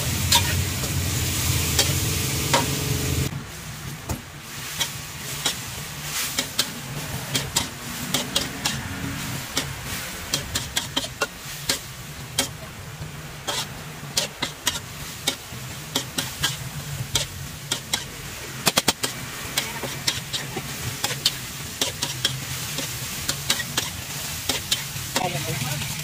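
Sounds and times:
food sizzling: 0.0 - 26.0
metal spatula clanking on wok: 0.2 - 1.0, 7.3 - 8.9, 9.5 - 12.6, 13.4 - 25.4.

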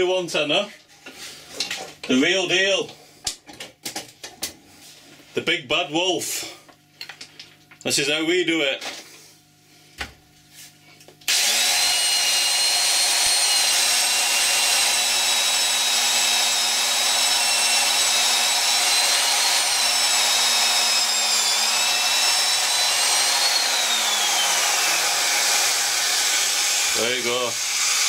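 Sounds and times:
electric drill boring into wood: 11.3 - 28.0.

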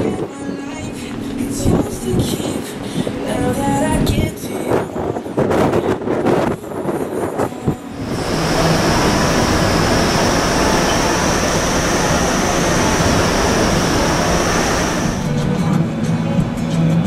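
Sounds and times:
rushing roar of air: 7.9 - 15.6
thin high whine: 8.0 - 15.5.

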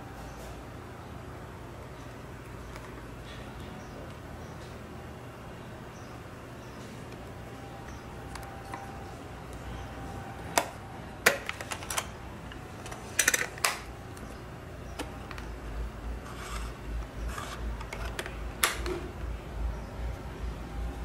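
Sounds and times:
plastic radio case clicks: 17.8 - 19.0.

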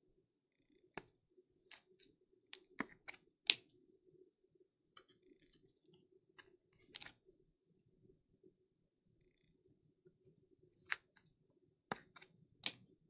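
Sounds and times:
soft rustling of cards: 6.4 - 7.2
plastic card holders clicking and tapping: 11.9 - 12.8.

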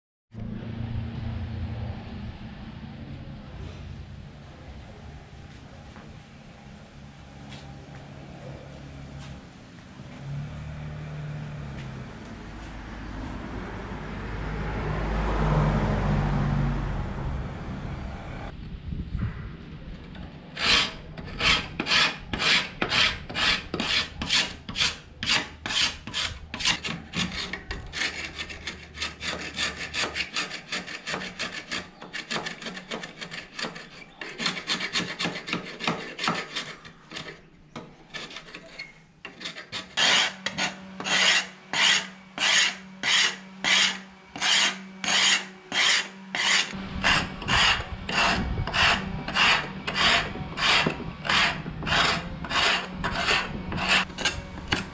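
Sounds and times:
metal scraper rasping paint off wood: 20.5 - 54.9.

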